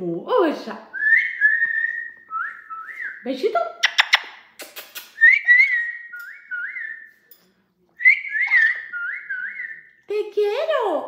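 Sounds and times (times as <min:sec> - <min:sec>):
parrot whistling a tune: 0:01.0 - 0:03.2, 0:05.2 - 0:07.2, 0:08.0 - 0:09.9.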